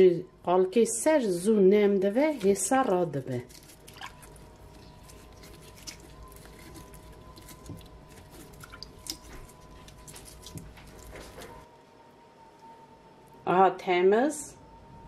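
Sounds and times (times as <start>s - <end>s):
skin crackling and clicking: 2.2s - 11.6s
wet squishing of peeled skin: 2.2s - 11.7s.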